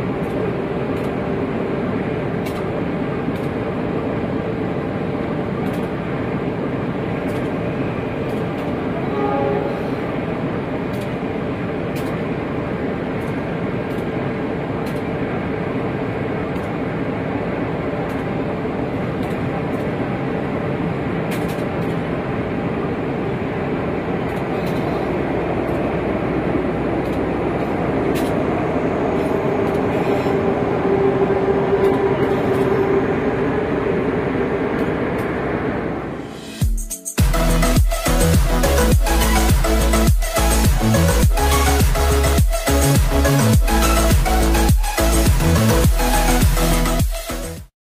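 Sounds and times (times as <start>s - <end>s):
train wheels rumbling on rail: 0.0s - 47.7s
drawn-out tone: 8.9s - 10.4s, 24.4s - 45.1s.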